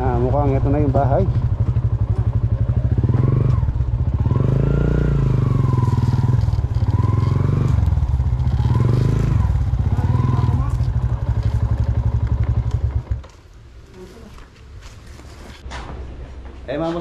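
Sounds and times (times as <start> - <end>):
motorcycle engine running: 0.0 - 13.4.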